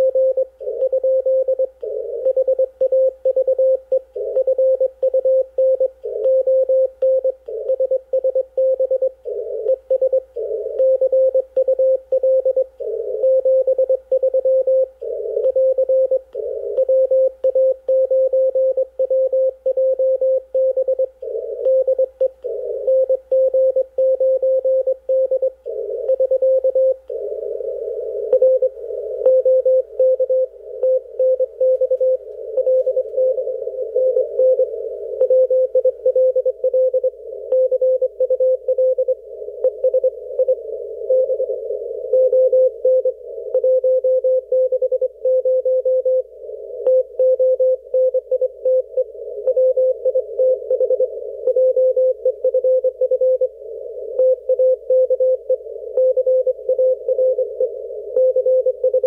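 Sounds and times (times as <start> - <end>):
morse code tone: 0.0 - 41.6.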